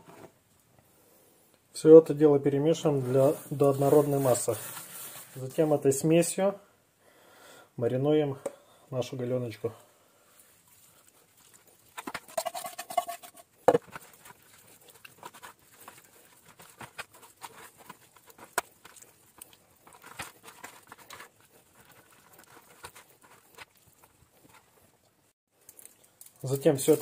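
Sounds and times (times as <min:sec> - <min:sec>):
hands squelching wet meat: 0:10.4 - 0:12.4, 0:13.8 - 0:25.1.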